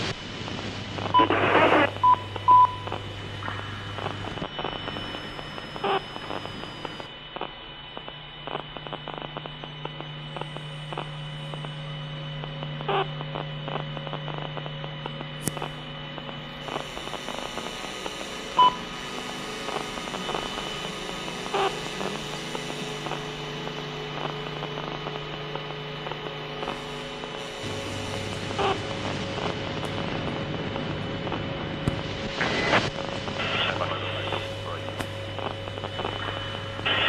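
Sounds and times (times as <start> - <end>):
low electronic hum: 0.0 - 37.0
crackling clicks: 1.0 - 11.8, 12.5 - 17.4, 24.2 - 27.0, 28.3 - 37.0.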